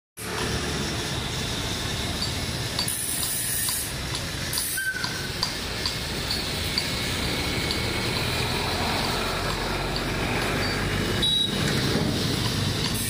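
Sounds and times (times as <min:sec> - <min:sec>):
low mechanical rumble: 0:00.2 - 0:13.0
short hissing bursts: 0:02.6 - 0:09.8.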